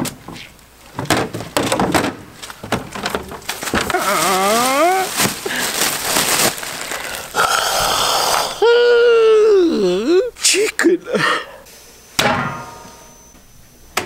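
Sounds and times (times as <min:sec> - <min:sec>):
plastic bin bags rustling: 0:00.0 - 0:08.5
short wavering vocal sound: 0:07.4 - 0:10.4.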